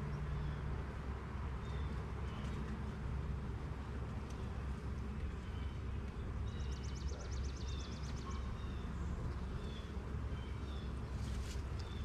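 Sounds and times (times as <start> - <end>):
songbird trill: 0.0 - 0.9, 1.5 - 2.8, 5.1 - 12.0
low outdoor rumble: 0.0 - 12.0.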